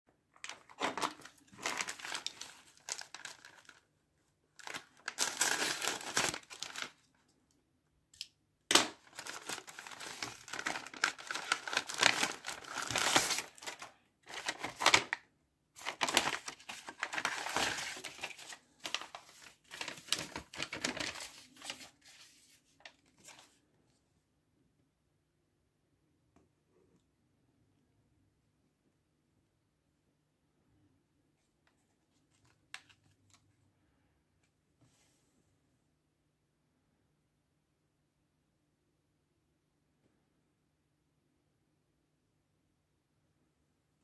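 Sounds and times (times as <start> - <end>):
paper rustling: 0.4 - 3.8, 4.6 - 7.1, 8.7 - 15.2, 15.8 - 23.6
plastic bag crinkling and tearing: 0.4 - 3.8, 4.6 - 7.1, 8.7 - 15.2, 15.8 - 22.2.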